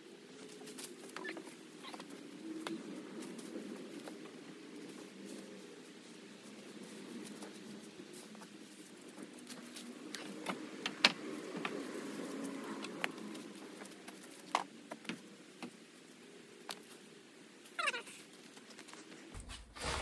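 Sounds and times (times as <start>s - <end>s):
footsteps on dry leaves and twigs: 0.2s - 15.2s.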